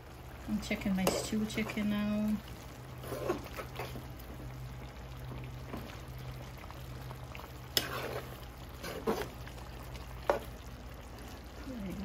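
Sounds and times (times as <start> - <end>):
stew simmering in a pan: 0.0 - 12.0
metal spoon stirring: 7.7 - 9.4.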